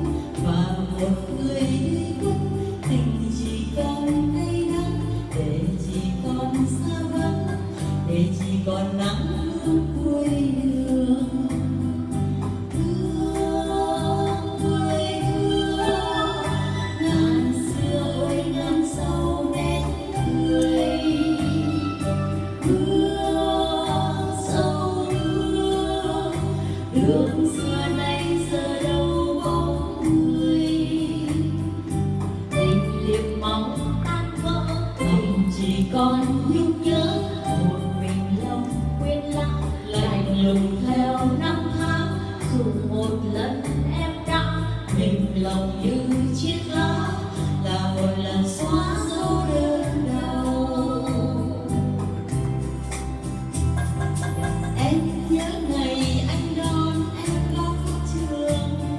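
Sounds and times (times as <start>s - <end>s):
women singing a duet: 0.0s - 58.9s
electronic keyboard: 50.8s - 58.6s
pulsing bass beat: 51.2s - 58.1s.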